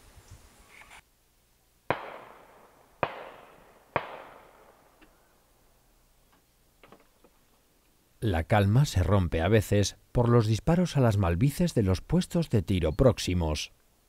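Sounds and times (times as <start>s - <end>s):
distant shotgun shots echoing: 1.9s - 5.0s.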